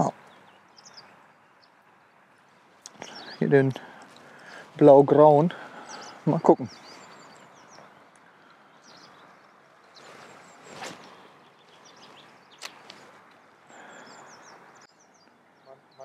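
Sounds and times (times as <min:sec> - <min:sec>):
birds chirping faintly: 0:00.0 - 0:16.0
fishing rod swishing: 0:10.0 - 0:11.2.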